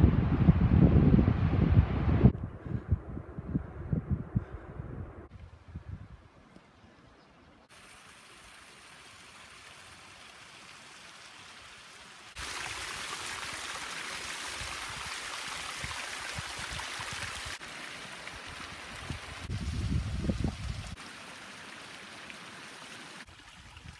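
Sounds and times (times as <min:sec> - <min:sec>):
water splashing over rocks: 0:07.7 - 0:23.9.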